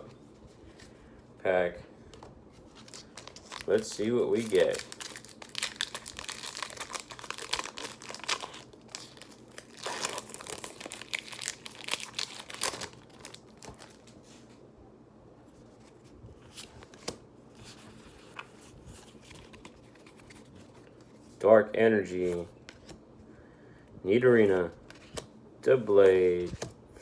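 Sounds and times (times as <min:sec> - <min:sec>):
foil wrapper tearing and crinkling: 0:02.8 - 0:14.0.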